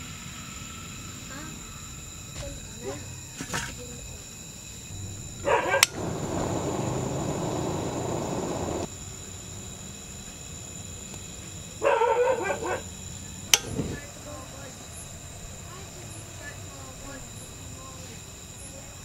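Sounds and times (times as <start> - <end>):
gas burner rushing hiss: 4.4 - 11.8, 12.4 - 18.7
dog barking: 5.4 - 6.2, 11.8 - 12.9
gas burner click: 5.7 - 8.9, 13.5 - 14.0.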